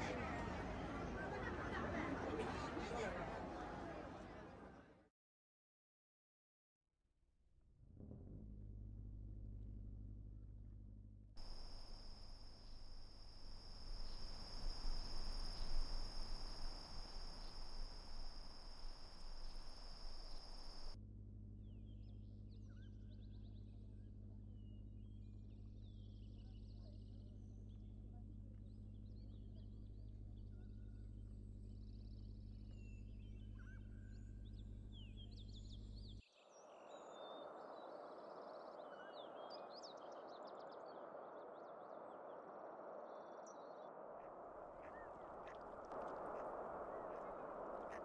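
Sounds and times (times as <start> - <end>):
steady low hum: 8.0 - 36.2
birds chirping: 11.4 - 21.0
steady hiss: 11.4 - 21.0.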